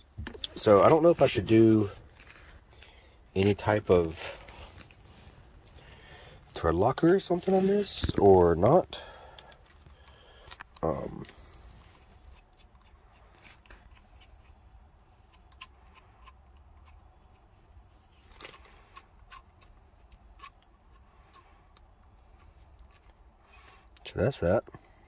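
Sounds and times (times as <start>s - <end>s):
small metal clicks: 9.4s - 24.0s.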